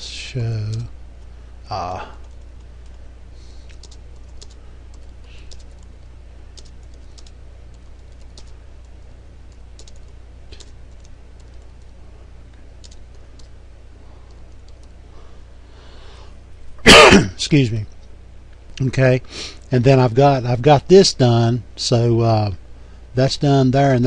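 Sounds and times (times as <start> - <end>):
steady low hum: 0.0 - 24.0
keyboard typing clicks: 3.7 - 5.9, 6.6 - 11.9, 12.8 - 13.5, 14.3 - 15.0.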